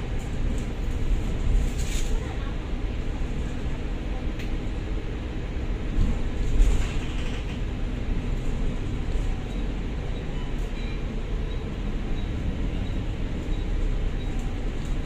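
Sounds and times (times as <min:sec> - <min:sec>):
bus diesel engine: 0:00.0 - 0:15.0
road rumble: 0:00.0 - 0:15.0.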